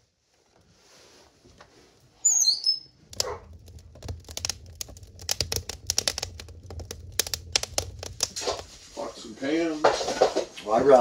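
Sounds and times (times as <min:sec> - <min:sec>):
kindling crackling and popping: 0:00.0 - 0:11.0
high chirping squeak: 0:02.2 - 0:03.0
low steady rumble: 0:03.1 - 0:10.1.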